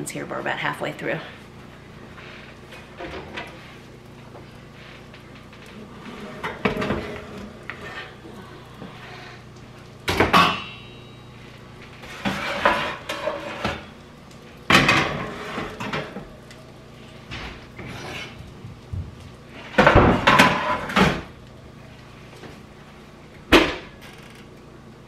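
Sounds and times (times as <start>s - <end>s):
metal pans and racks clattering: 2.7s - 3.6s, 5.6s - 8.2s, 10.1s - 10.9s, 12.0s - 13.9s, 14.7s - 16.4s, 17.3s - 18.6s, 19.6s - 21.4s
sharp ringing clank: 10.4s - 11.2s.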